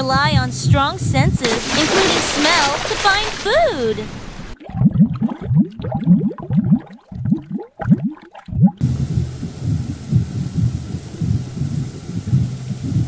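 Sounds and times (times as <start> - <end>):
underwater bubbling and gurgling: 2.4 - 13.0
steady hiss with rhythmic pulses: 8.8 - 13.0.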